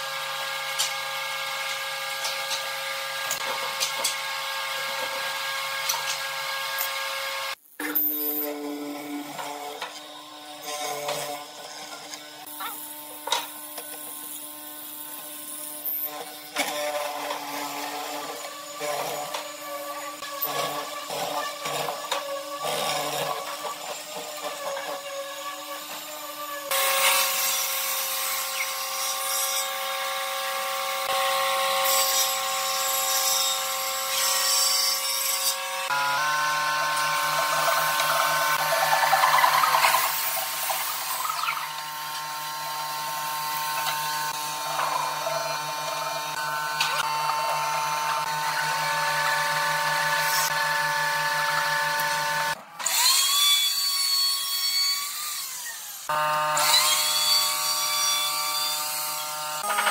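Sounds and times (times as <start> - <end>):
electric power tool whine: 35.4 - 59.9.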